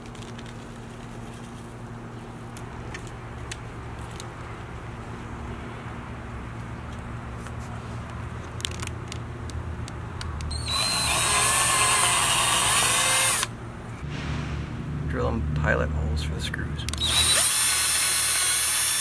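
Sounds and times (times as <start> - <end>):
cordless drill motor whining: 10.5 - 13.5, 17.0 - 19.0
low background rumble: 13.3 - 18.3.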